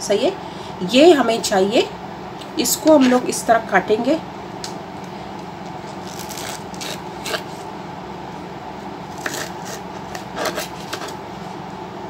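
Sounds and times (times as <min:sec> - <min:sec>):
background hum: 0:00.0 - 0:12.0
knife slicing cabbage on board: 0:05.9 - 0:07.6, 0:09.1 - 0:11.2.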